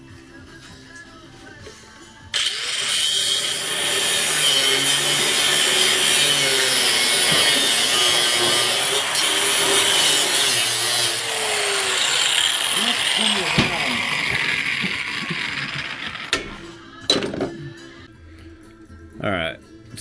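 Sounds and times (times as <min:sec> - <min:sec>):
angle grinder cutting steel: 0:02.4 - 0:16.6.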